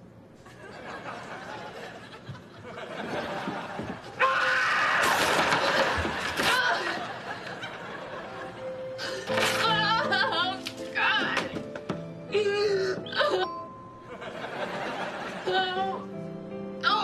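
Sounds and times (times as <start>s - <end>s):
studio audience laughter: 0.4s - 4.2s, 5.4s - 8.9s, 14.1s - 15.5s.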